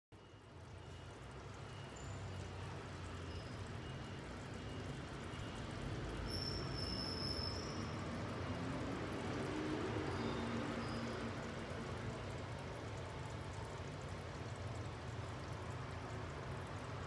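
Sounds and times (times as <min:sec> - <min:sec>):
food simmering in a pan: 0:00.1 - 0:17.0
thin high whistle: 0:06.2 - 0:08.0.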